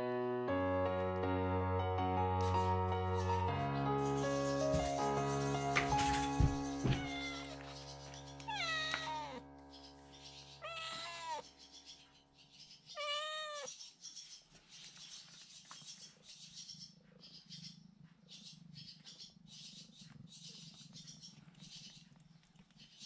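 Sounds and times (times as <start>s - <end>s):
cat meowing: 6.9s - 7.6s, 8.5s - 9.4s, 10.6s - 11.4s, 12.9s - 13.7s.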